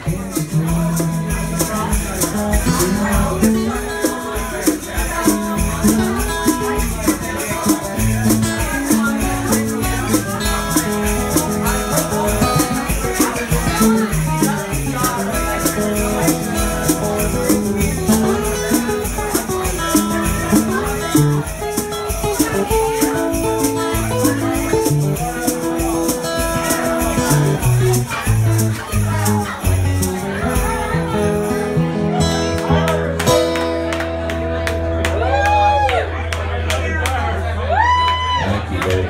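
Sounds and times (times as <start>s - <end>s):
shaker-like rattle: 0.0s - 32.2s
bongos: 0.0s - 34.4s
guitar: 0.0s - 39.0s.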